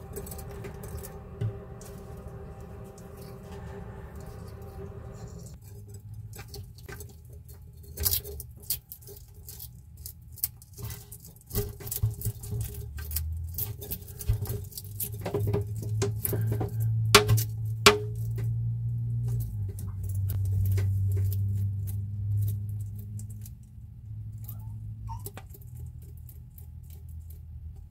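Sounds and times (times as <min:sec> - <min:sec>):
low hum: 0:00.0 - 0:05.6, 0:15.7 - 0:25.1.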